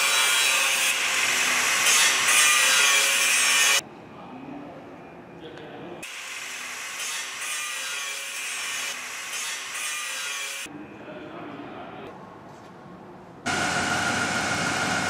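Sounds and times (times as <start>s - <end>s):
low machine noise: 13.4s - 15.0s.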